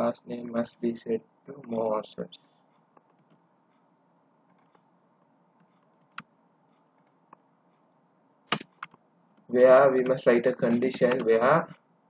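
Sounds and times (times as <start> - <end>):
faint room hiss: 0.0 - 12.0
keyboard and mouse clicks: 2.9 - 3.4, 4.5 - 4.9, 5.6 - 7.4, 8.5 - 11.9.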